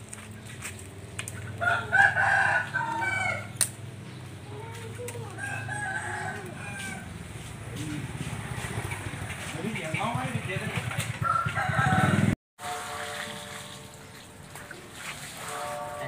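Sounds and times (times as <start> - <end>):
rooster crowing: 1.6 - 3.6, 5.4 - 7.2, 11.2 - 12.3.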